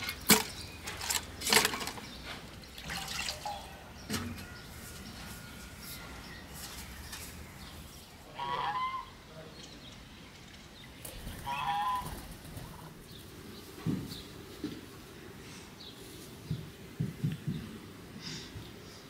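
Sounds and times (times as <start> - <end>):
geese honking: 8.2 - 9.3, 11.4 - 12.2.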